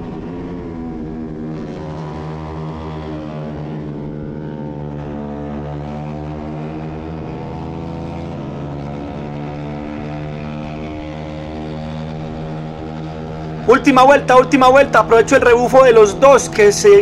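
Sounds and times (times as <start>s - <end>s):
motorcycle engine running hard: 0.0s - 17.0s.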